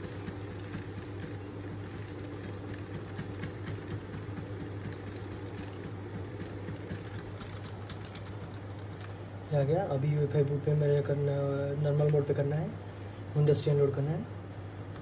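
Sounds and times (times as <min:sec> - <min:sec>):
computer fans humming: 0:00.0 - 0:15.0.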